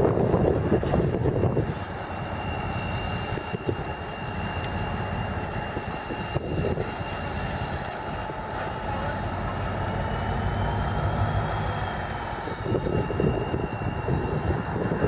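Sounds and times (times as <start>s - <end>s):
diesel locomotive engine rumble: 0.0s - 15.0s
high wheel squeal: 0.0s - 15.0s.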